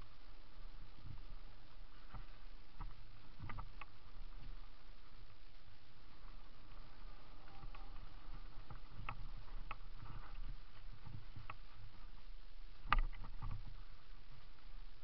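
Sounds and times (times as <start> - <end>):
bike rolling over dirt trail: 6.0 - 12.3.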